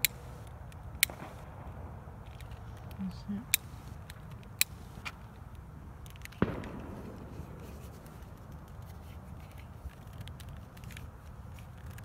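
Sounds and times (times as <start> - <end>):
steady low rumble: 0.0 - 12.0
firework bang with echo: 6.4 - 8.0.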